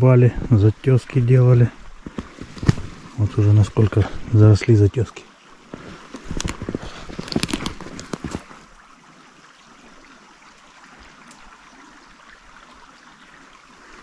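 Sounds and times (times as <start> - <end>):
forest stream rushing: 0.0 - 14.0
crunching footsteps: 1.8 - 3.2, 5.7 - 8.6.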